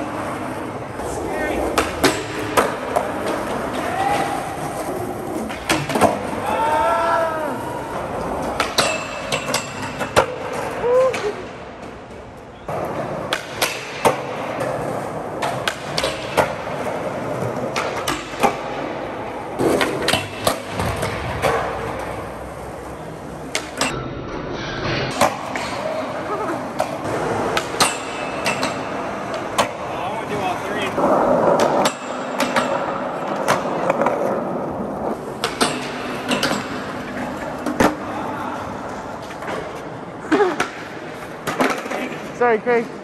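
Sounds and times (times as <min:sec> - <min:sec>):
skateboard wheels rolling on concrete: 0:00.0 - 0:43.0
skateboard clacks on metal bar: 0:08.6 - 0:10.4, 0:27.6 - 0:29.8.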